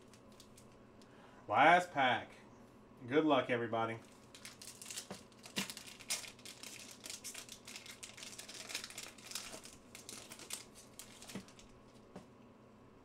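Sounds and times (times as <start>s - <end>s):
foil wrapper crinkling: 0.0s - 0.8s, 4.0s - 12.1s.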